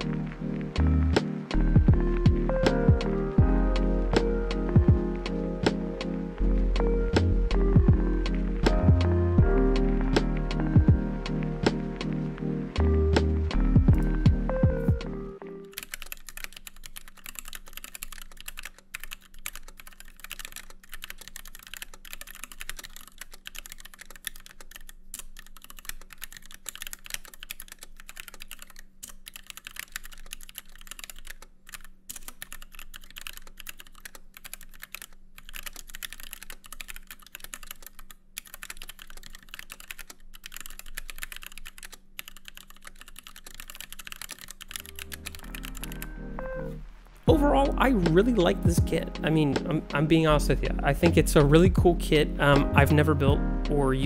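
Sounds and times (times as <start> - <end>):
mechanical keyboard typing: 15.6 - 46.1.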